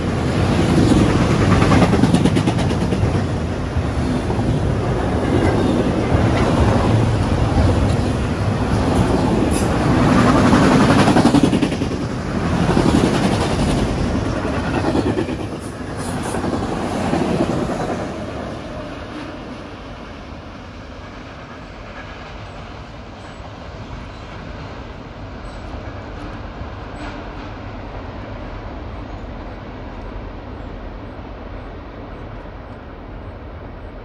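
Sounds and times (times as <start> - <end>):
freight train wheels clattering: 0.0 - 18.9.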